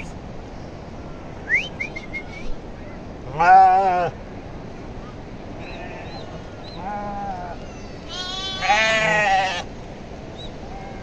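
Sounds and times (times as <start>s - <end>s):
sheep and goats bleating: 3.3s - 4.1s, 6.8s - 9.7s.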